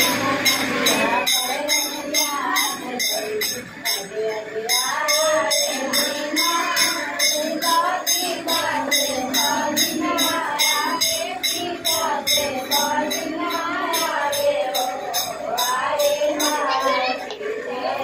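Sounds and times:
jingling percussion beat: 0.0s - 17.7s
women singing folk song: 0.0s - 18.0s.

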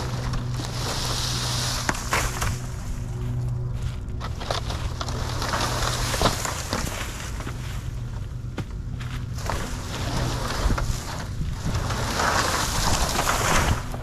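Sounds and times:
vehicle engine running: 0.0s - 14.0s
wind noise: 9.4s - 14.0s.

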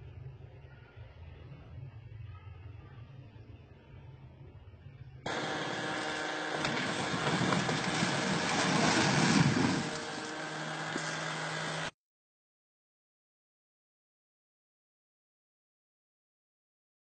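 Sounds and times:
outdoor noise: 0.0s - 11.9s.

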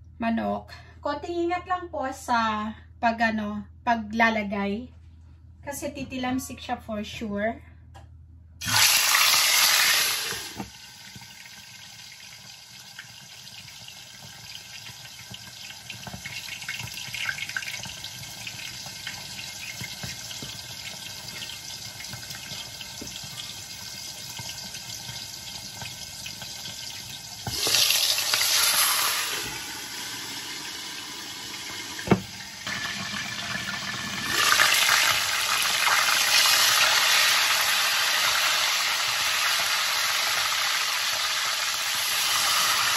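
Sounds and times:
chicken sizzling in hot oil: 8.6s - 42.9s
sharp knock: 32.1s - 32.3s.

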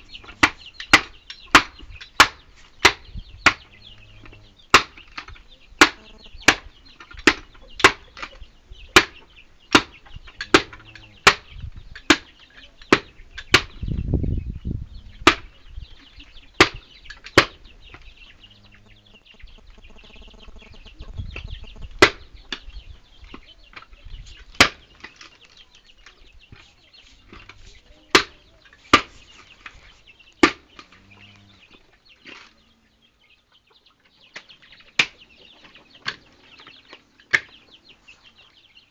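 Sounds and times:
low rumbling: 17.6s - 23.0s.

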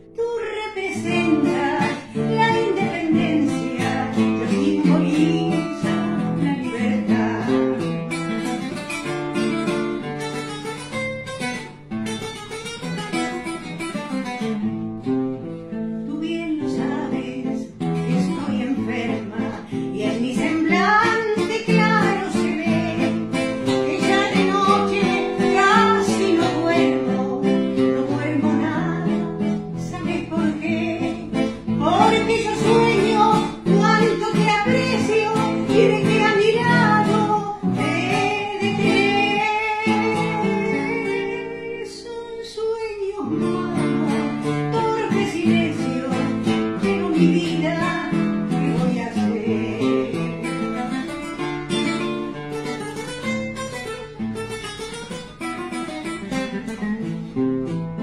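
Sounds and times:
elderly woman singing: 0.0s - 7.9s, 16.0s - 50.8s
acoustic guitar strummed and plucked: 0.0s - 58.0s.

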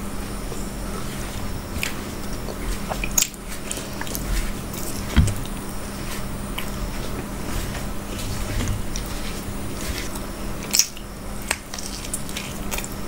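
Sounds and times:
fingers mixing food on steel plate: 1.0s - 13.0s
wet chewing: 1.0s - 13.0s
dull thump: 5.0s - 5.6s.

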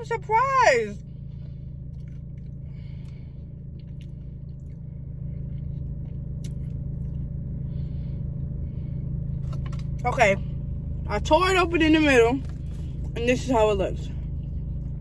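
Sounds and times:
car engine humming: 0.0s - 15.0s
chewing and crunching fried chicken: 1.1s - 8.5s.

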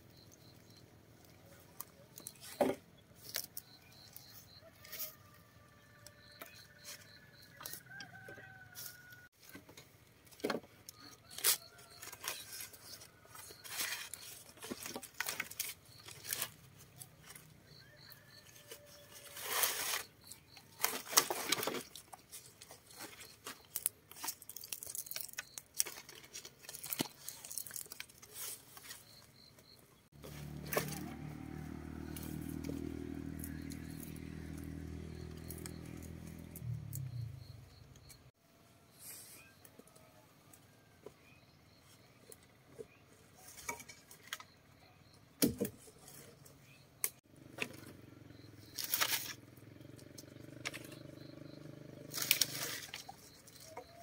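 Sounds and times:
rustling: 10.9s - 29.4s.

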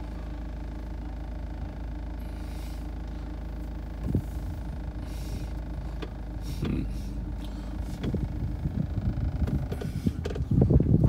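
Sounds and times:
van engine idling: 0.0s - 11.0s.

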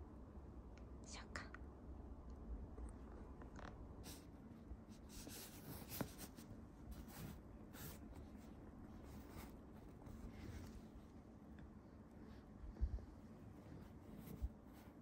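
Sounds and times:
cat pawing at cloth: 5.0s - 8.4s.

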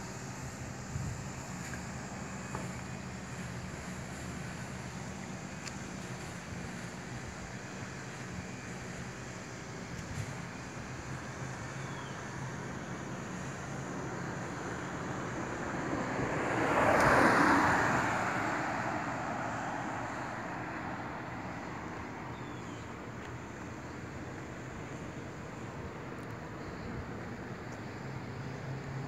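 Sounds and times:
traffic noise: 0.0s - 29.0s
wind: 0.0s - 29.0s
car driving past: 15.7s - 21.4s.

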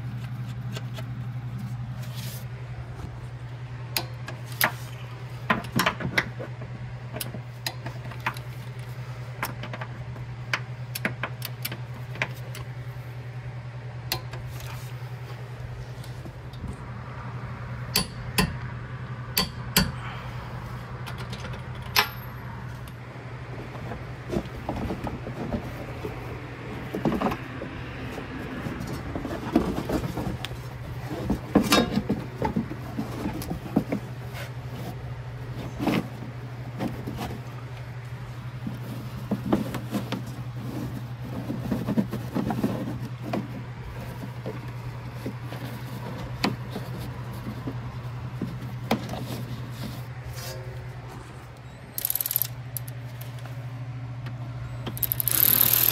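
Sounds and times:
steady low hum: 0.0s - 55.9s
felt liner rustling and scraping: 1.6s - 2.5s, 38.6s - 51.4s.

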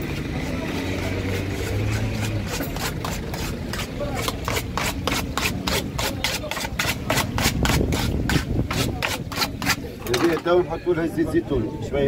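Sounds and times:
vehicle engine: 0.0s - 10.2s
knife chopping in metal dish: 1.4s - 10.4s.

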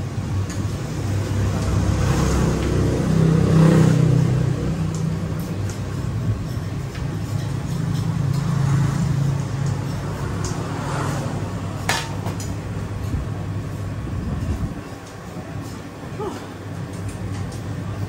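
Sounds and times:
vehicle engine humming: 0.0s - 18.0s.

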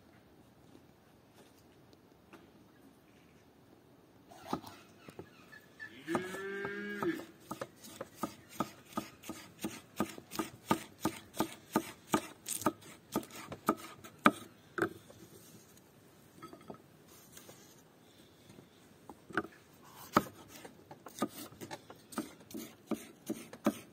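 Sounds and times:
cow mooing: 5.9s - 7.2s.

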